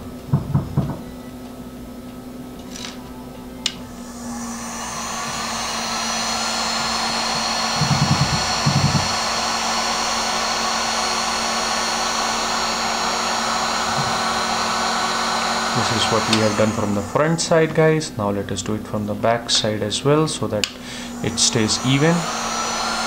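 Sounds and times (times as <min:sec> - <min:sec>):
heat gun blowing air: 0:03.9 - 0:17.6, 0:20.7 - 0:23.0.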